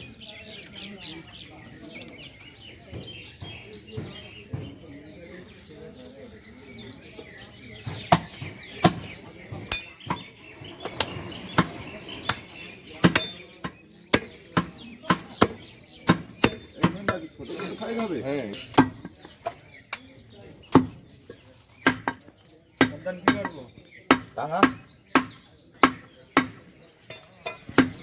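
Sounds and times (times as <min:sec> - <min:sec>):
cleaver chopping meat on wood: 0:07.8 - 0:10.3, 0:12.3 - 0:17.2, 0:18.7 - 0:20.0, 0:20.7 - 0:21.0, 0:21.8 - 0:22.2, 0:22.8 - 0:26.6, 0:27.2 - 0:28.0.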